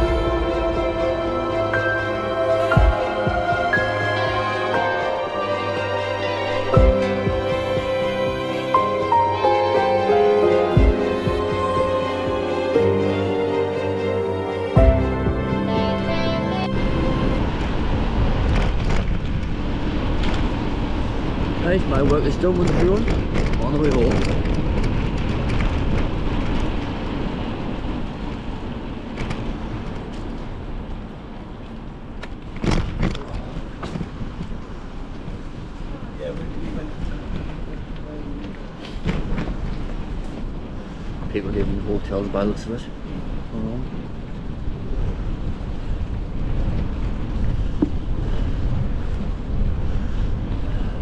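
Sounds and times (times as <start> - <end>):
bicycle road noise: 0.0 - 51.0
passing traffic: 0.0 - 51.0
wind on microphone: 14.8 - 31.4, 32.0 - 51.0.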